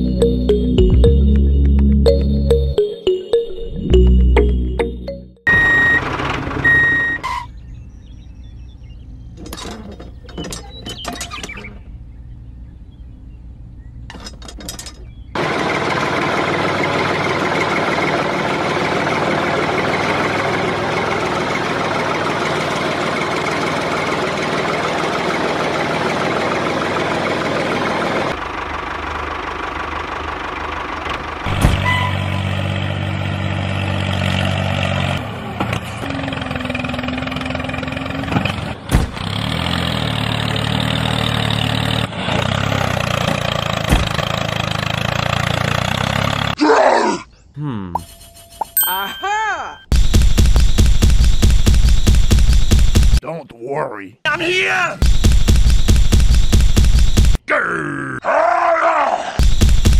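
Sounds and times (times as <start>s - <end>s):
low engine-like drone: 0.0s - 2.9s.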